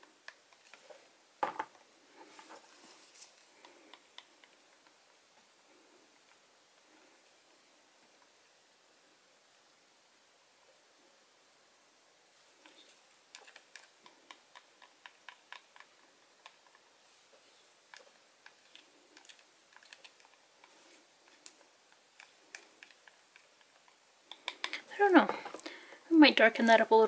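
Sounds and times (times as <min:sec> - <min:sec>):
stick stirring paint in cup: 0:12.5 - 0:24.8
stick tapping plastic cup: 0:23.6 - 0:24.8.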